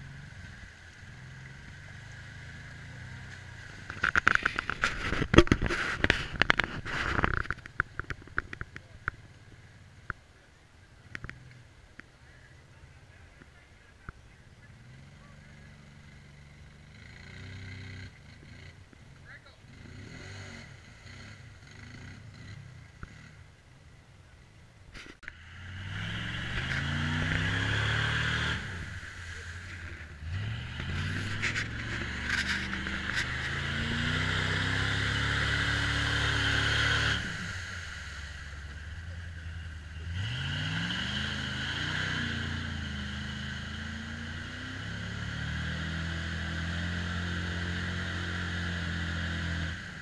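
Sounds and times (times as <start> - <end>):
engine revving hard: 19.7 - 23.4, 25.5 - 39.1, 39.7 - 50.0.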